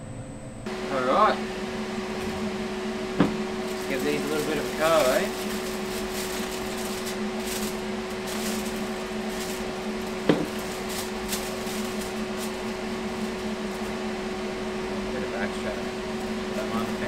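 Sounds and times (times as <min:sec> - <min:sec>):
low machine hum: 0:00.0 - 0:17.0
aluminium foil crinkling: 0:03.6 - 0:14.0.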